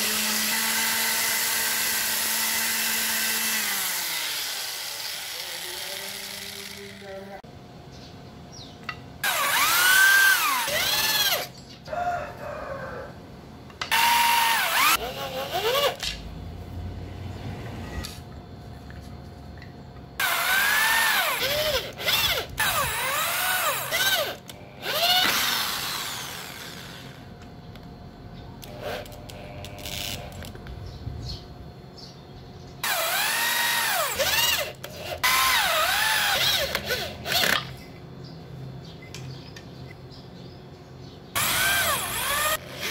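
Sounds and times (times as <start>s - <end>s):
electric drill drilling into wood: 0.0s - 7.0s, 9.2s - 11.5s, 13.9s - 16.0s, 20.2s - 27.2s, 32.8s - 37.6s, 41.4s - 42.9s.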